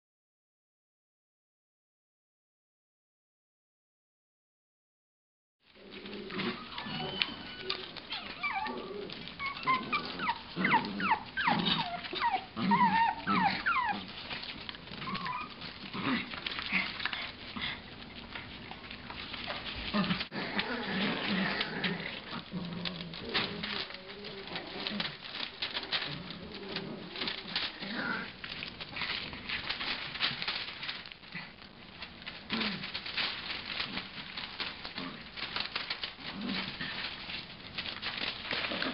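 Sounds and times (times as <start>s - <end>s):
puppies squeaking and whining: 6.0s - 28.3s.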